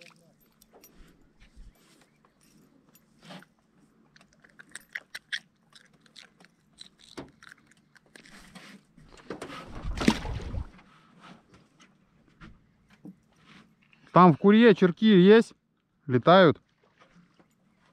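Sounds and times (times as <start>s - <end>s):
clicks and rattles handling fish: 0.0s - 10.8s.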